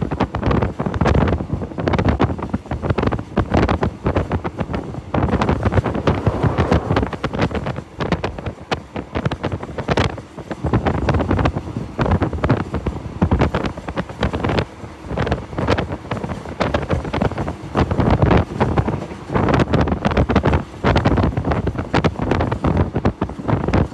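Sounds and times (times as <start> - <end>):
wind buffeting microphone: 0.0 - 23.9
train rumbling: 3.2 - 11.0.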